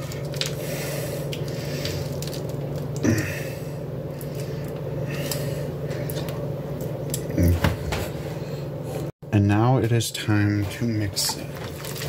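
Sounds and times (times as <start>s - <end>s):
wet squishing of food in a pot: 0.0s - 3.0s, 10.7s - 12.0s
steady low hum: 0.0s - 12.0s.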